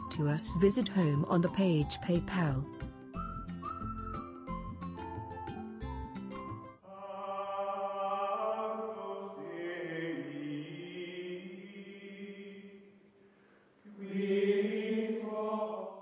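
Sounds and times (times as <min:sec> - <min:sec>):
chant-like vocal music: 0:06.8 - 0:13.0, 0:13.8 - 0:16.0.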